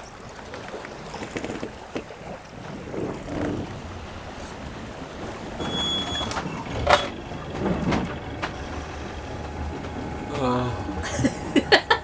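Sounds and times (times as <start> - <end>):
wind and sea rumble: 0.0 - 12.0
short high beep: 5.6 - 6.4.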